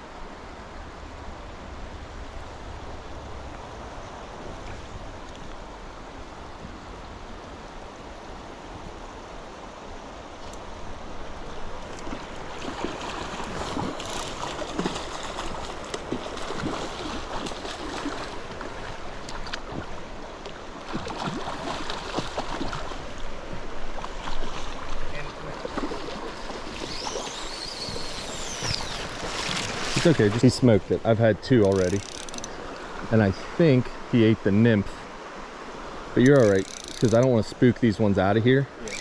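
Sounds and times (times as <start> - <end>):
creek water over rocks: 0.0 - 39.0
small water splashes: 11.6 - 33.2.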